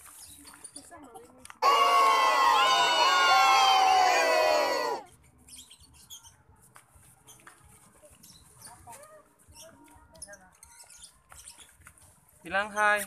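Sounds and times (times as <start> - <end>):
children shouting: 1.6 - 5.0.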